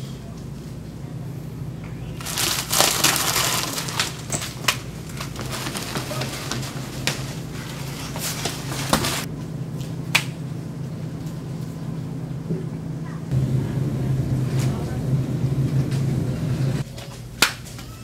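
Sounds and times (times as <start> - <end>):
packages crinkling and clattering: 2.2 - 9.3
low hum: 9.3 - 16.8.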